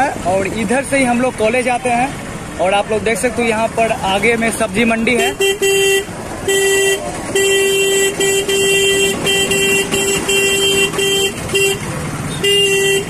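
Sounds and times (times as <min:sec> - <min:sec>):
street traffic: 0:00.0 - 0:13.0
vehicle horn honking: 0:05.2 - 0:13.0.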